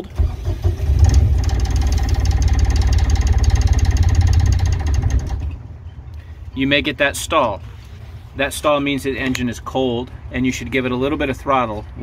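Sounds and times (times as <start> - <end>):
starter motor cranking: 0.0 - 5.6
diesel engine clattering: 0.0 - 6.0.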